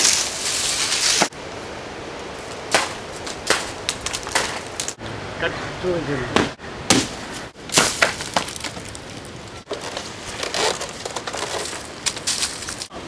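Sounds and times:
dry palm fronds crackling: 0.0s - 1.4s, 2.3s - 5.0s, 6.9s - 13.0s.

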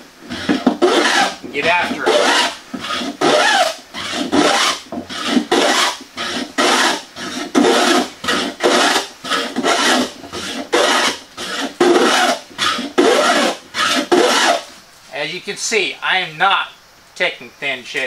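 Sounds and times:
hand plane rasping across wood: 0.2s - 14.7s.

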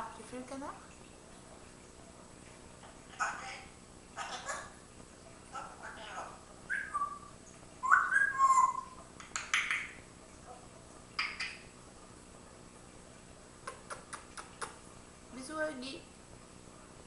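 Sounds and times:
parrot noisy calls: 3.1s - 4.8s, 5.5s - 10.0s
parrot whistled calls: 6.7s - 9.0s
parrot sharp clicks: 9.2s - 9.9s.

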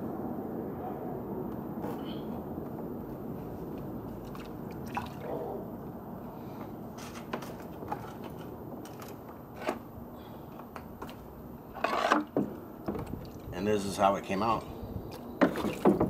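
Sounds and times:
liquid sloshing and dripping: 4.1s - 5.4s, 12.8s - 13.5s, 15.0s - 16.0s.

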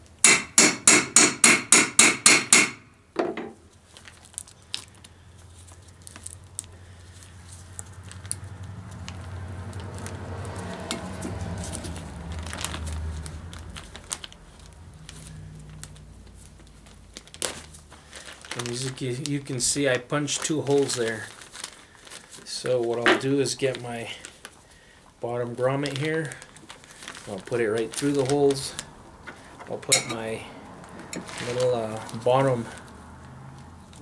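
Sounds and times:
hammer striking metal punch: 0.2s - 3.6s, 29.9s - 30.2s
tarp rustling and clicking: 3.7s - 24.6s, 25.6s - 32.9s.

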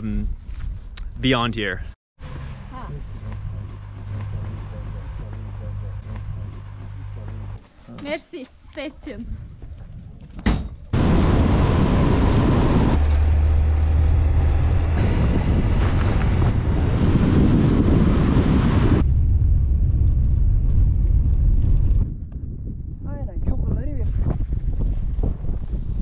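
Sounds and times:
car driving rumble: 2.2s - 7.6s, 10.9s - 23.0s
wind buffeting microphone: 9.0s - 26.0s.

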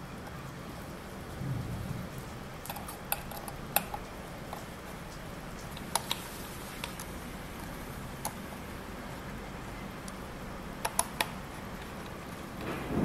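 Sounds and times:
background hiss: 0.0s - 13.0s
clicks and taps: 2.6s - 8.6s, 10.8s - 12.8s.

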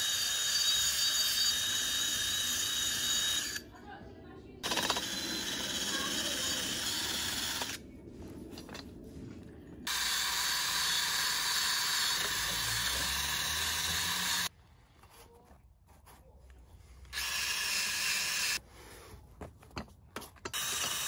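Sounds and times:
drill wire brush scouring steel: 0.0s - 3.6s, 4.6s - 7.8s, 9.9s - 14.5s, 20.5s - 21.0s.

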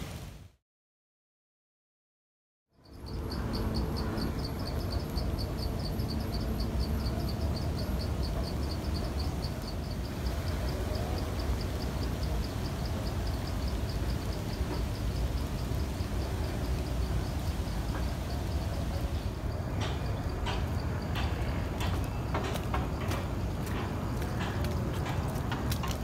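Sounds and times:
insect pulsing trill: 2.8s - 21.1s.

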